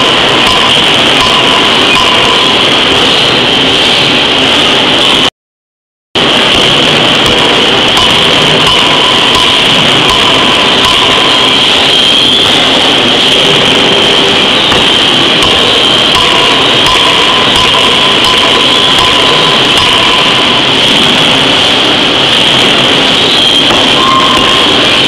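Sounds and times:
forging hammer machinery noise: 0:00.0 - 0:05.3, 0:06.2 - 0:25.0
high whine: 0:00.0 - 0:05.3, 0:06.2 - 0:25.0.

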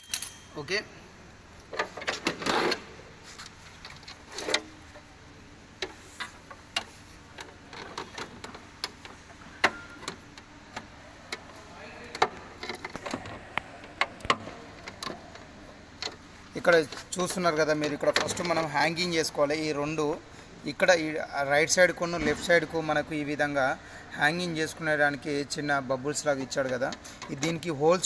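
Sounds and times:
plastic parts clicking and knocking: 0:05.8 - 0:16.2.

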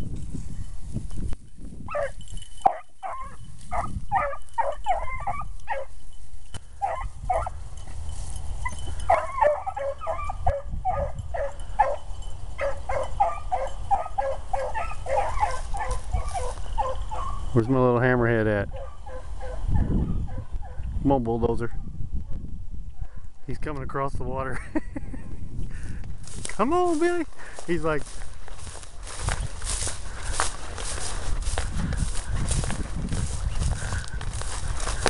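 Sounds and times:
hounds baying: 0:01.9 - 0:17.6, 0:18.6 - 0:21.0.

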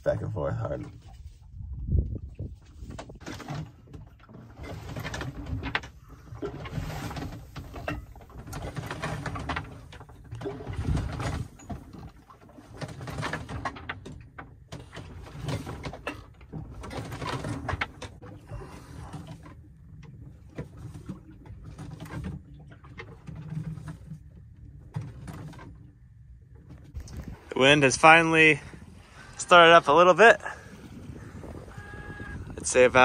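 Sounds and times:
sailboat creaking and knocking: 0:00.0 - 0:33.0.

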